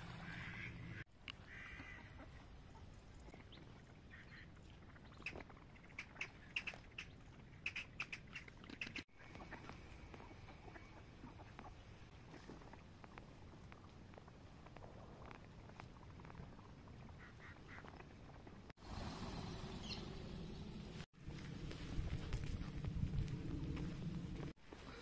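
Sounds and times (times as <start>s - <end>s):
ducks quacking: 0.1s - 2.4s, 17.2s - 17.9s.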